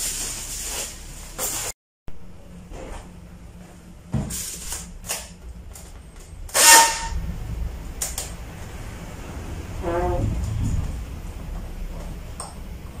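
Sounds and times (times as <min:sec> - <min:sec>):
foam packing squeak: 0:06.6 - 0:07.2.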